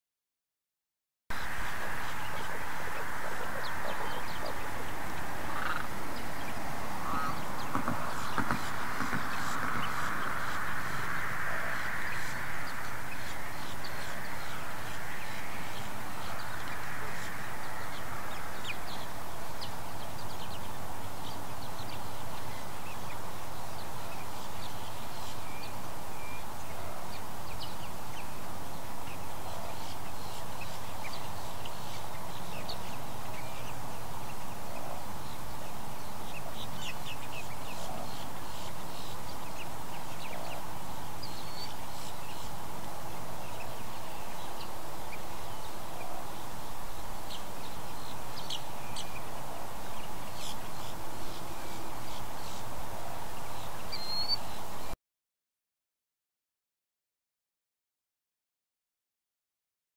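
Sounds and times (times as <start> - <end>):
birds calling and chirping: 1.3 - 54.9
steady background hiss: 1.3 - 55.0.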